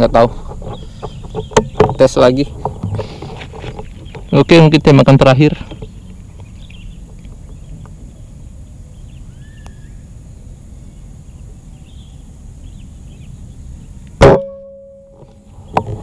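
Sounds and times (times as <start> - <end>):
low outdoor background: 0.0 - 16.0
faint bird chirps: 5.7 - 15.9.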